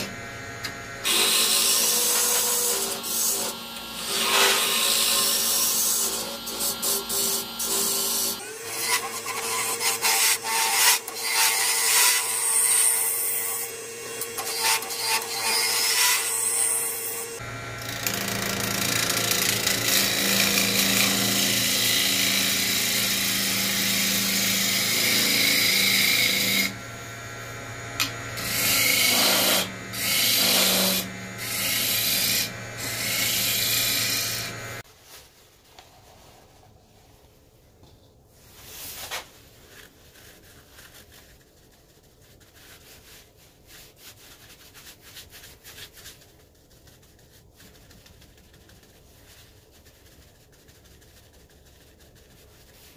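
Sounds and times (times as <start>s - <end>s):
gouge scraping spinning wood: 0.0s - 34.8s
wood lathe humming: 0.0s - 34.8s.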